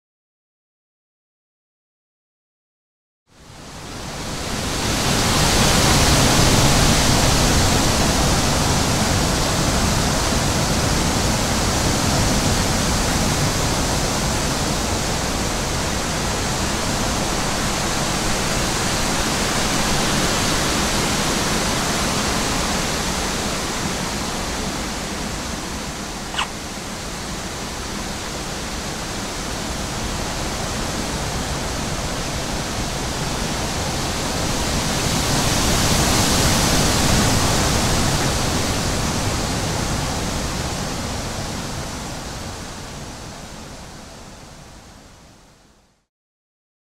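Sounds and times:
sharp click: 26.3s - 26.6s.

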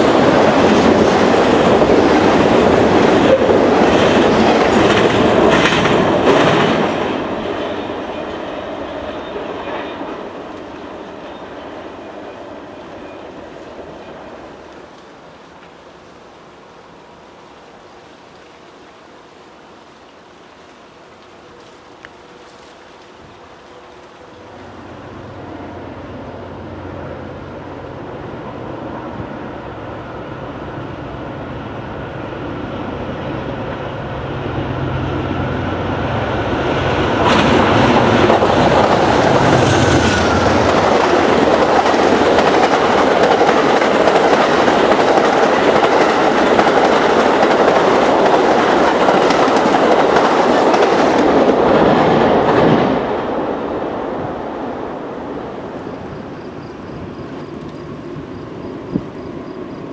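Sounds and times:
train wheels clacking on rails: 0.0s - 12.1s, 36.7s - 53.0s
diesel locomotive engine drone: 0.0s - 59.9s.

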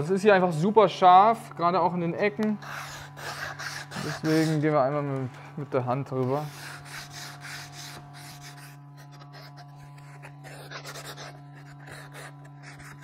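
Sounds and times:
steady low hum: 0.0s - 13.0s
sandpaper rubbing on wood: 2.6s - 4.8s, 5.8s - 13.0s.

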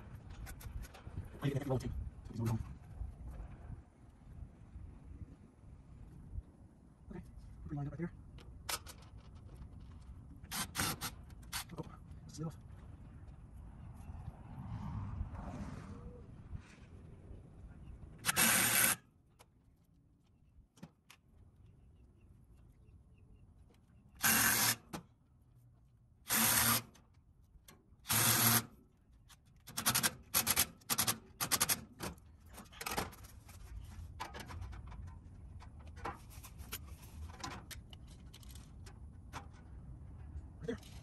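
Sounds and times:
cordless drill bursts: 18.2s - 19.0s, 24.2s - 24.8s, 26.3s - 26.9s, 28.1s - 28.7s.

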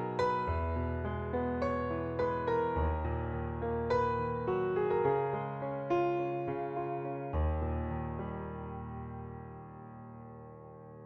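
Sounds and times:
soft piano chord: 0.0s - 11.0s.

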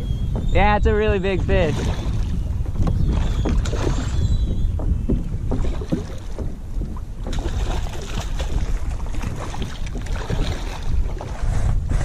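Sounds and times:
wind buffeting microphone: 0.0s - 12.0s
fish thrashing water splashes: 3.0s - 11.4s.

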